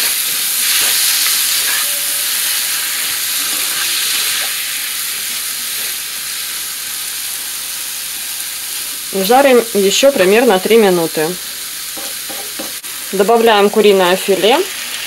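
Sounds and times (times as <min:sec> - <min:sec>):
food sizzling in a frying pan: 0:00.0 - 0:15.0.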